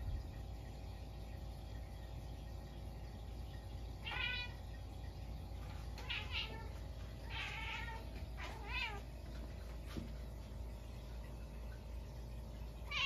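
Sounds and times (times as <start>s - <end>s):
cat meowing: 4.0s - 4.6s, 6.0s - 6.7s, 7.3s - 9.1s.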